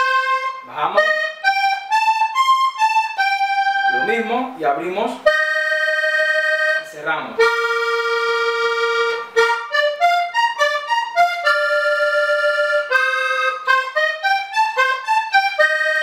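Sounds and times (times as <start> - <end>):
button accordion melody: 0.0 - 16.0.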